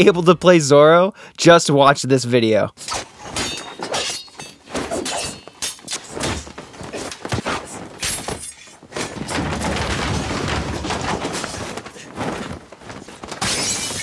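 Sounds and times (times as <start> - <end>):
sword blades clashing: 2.8 - 8.8, 13.2 - 14.0
objects crashing and shattering: 2.8 - 14.0
thuds: 2.9 - 14.0.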